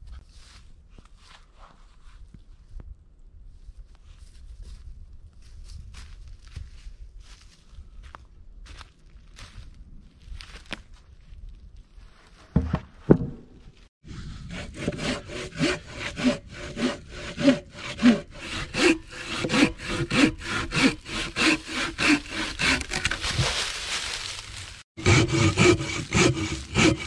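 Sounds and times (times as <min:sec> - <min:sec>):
log thumping onto ground: 0:12.5 - 0:13.7
hand saw cutting log: 0:14.1 - 0:23.7, 0:25.0 - 0:27.0.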